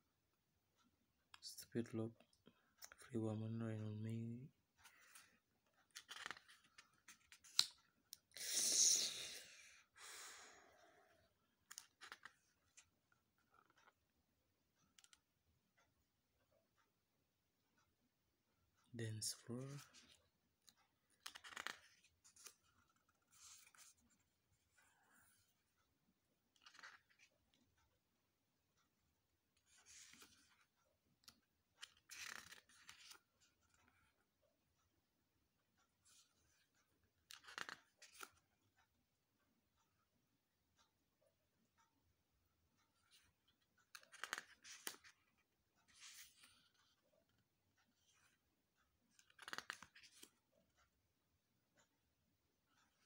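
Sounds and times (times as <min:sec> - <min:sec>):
booklet pages rustling: 0:04.7 - 0:08.2, 0:11.6 - 0:14.0, 0:19.2 - 0:25.5, 0:26.4 - 0:28.0, 0:29.6 - 0:34.3, 0:36.0 - 0:38.6, 0:42.8 - 0:50.9.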